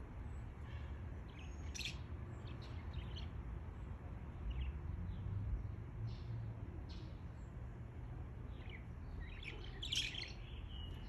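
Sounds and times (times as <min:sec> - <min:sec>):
budgerigars chirping: 0:01.7 - 0:02.0, 0:09.3 - 0:10.4.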